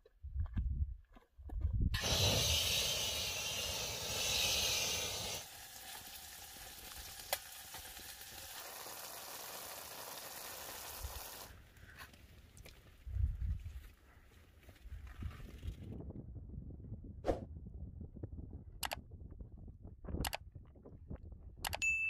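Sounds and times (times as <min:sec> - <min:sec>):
gas stove burner hissing: 0:02.0 - 0:11.5
sharp click: 0:21.6 - 0:21.8.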